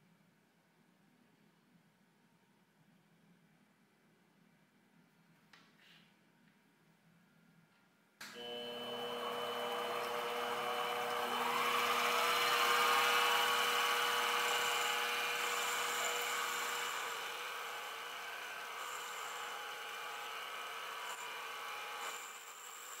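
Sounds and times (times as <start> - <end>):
metal lathe whining: 8.3 - 23.0
cutting tool peeling metal chips: 9.2 - 23.0.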